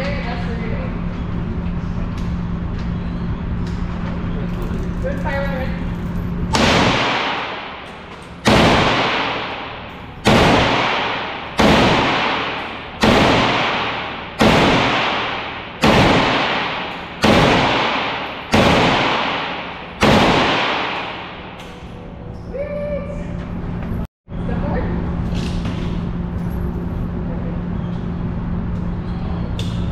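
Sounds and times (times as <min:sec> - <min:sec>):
handgun shots ringing indoors: 0:06.5 - 0:22.1.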